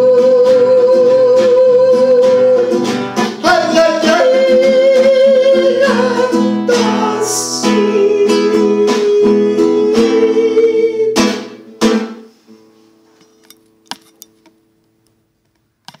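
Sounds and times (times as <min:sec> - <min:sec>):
man singing: 0:00.0 - 0:11.6
classical guitar strumming: 0:00.0 - 0:14.7.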